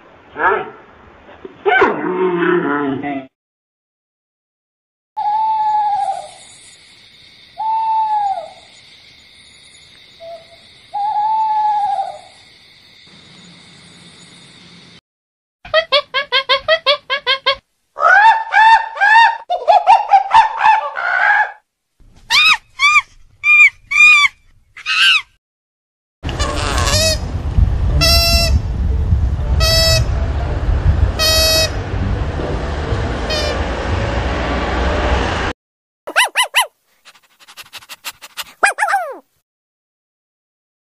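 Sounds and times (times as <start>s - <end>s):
owl hooting: 5.2s - 6.4s, 7.6s - 8.8s, 10.2s - 12.4s, 37.8s - 39.2s
monkeys calling and screeching: 22.3s - 25.3s, 36.1s - 39.2s.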